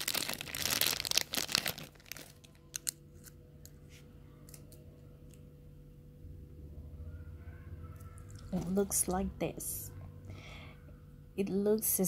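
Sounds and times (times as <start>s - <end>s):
packaging crinkled and torn: 0.0s - 3.7s.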